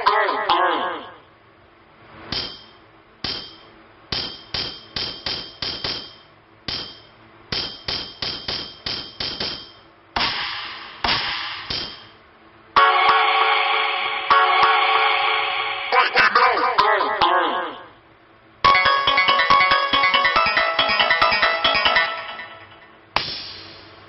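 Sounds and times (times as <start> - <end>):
hammer-like metallic knocks: 2.3 - 12.2.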